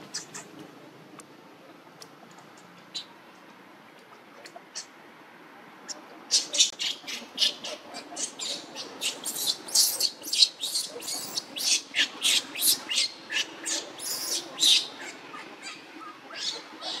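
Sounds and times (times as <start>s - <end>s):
infant monkey shrill squeals: 6.3s - 17.0s.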